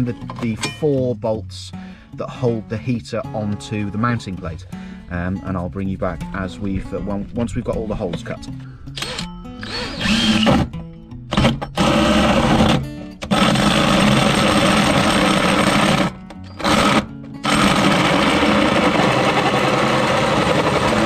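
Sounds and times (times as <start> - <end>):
hole saw drilling sheet steel: 8.9 - 10.7, 11.3 - 21.0.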